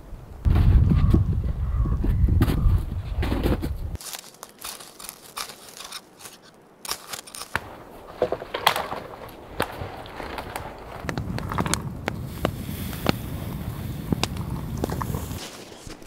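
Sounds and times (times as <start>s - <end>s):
dead branches knocking and crackling: 3.2s - 13.2s
boots crunching through snow: 4.0s - 7.6s
wood shavings rustling: 4.0s - 16.0s.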